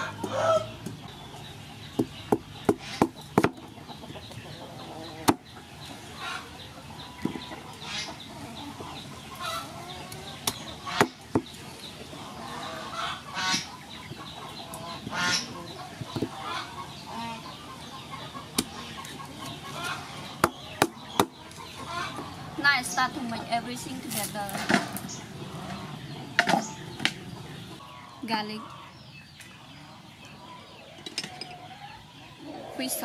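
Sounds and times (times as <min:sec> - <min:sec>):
chickens clucking: 0:00.0 - 0:33.0.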